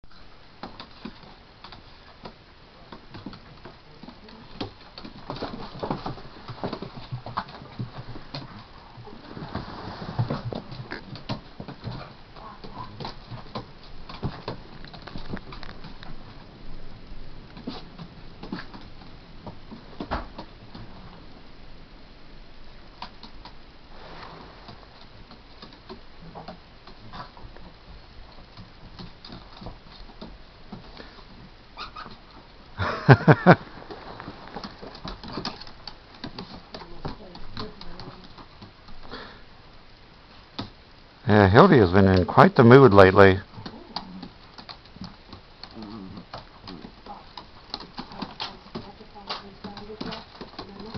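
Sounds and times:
paws scuffling: 17.5 - 21.0, 33.2 - 39.2
dog claws clicking on floor: 43.6 - 50.9.

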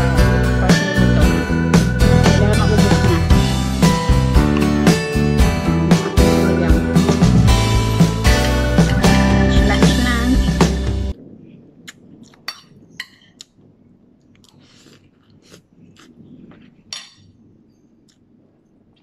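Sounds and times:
music: 0.0 - 11.2
person chewing food: 11.8 - 19.0.

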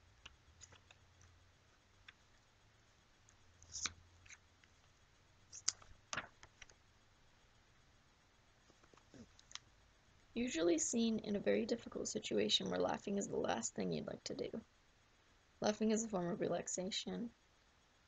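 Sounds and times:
mouse and keyboard clicks: 0.2 - 1.0, 3.6 - 4.4, 5.5 - 6.8.

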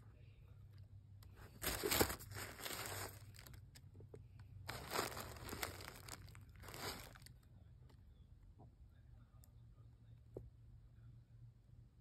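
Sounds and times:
tissue paper crinkling: 1.5 - 3.6, 4.7 - 7.3.

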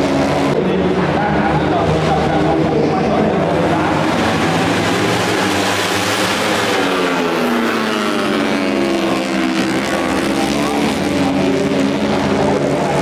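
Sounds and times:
speedboat engine running hard: 1.5 - 13.0.

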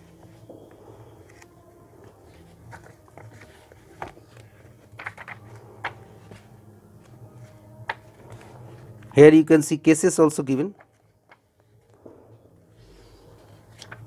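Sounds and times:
paper pages rustling: 0.0 - 9.1, 10.7 - 12.1, 13.1 - 14.0.

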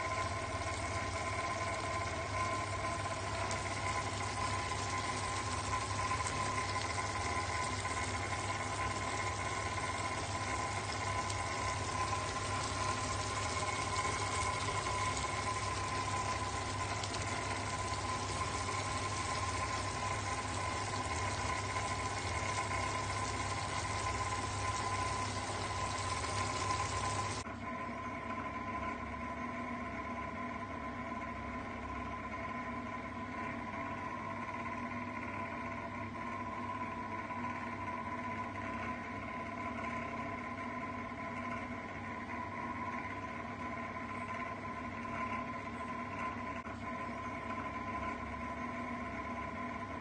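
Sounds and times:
broth simmering in a pan: 0.0 - 27.7, 28.4 - 50.0
machine hum: 0.0 - 28.2.

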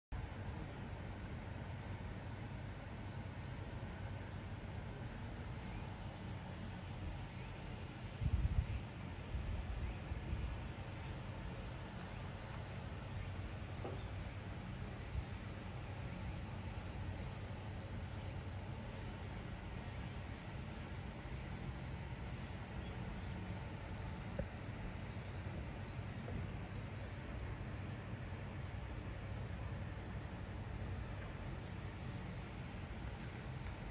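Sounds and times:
insects buzzing and chirping: 0.2 - 33.9
wind rumble on microphone: 7.0 - 11.6.

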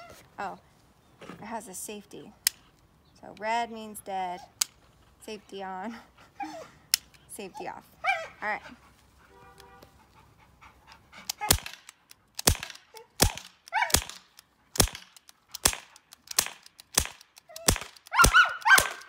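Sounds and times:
air pistol pops: 11.3 - 19.0
dog whining: 17.4 - 19.0.

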